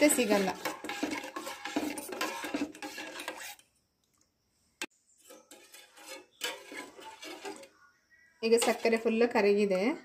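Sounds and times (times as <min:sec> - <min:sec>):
spoon stirring in steel bowl: 0:00.0 - 0:03.7, 0:05.2 - 0:07.8, 0:08.4 - 0:09.4.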